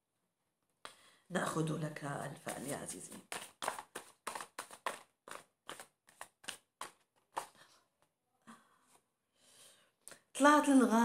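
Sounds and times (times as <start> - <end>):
cards being shuffled: 2.4 - 7.7.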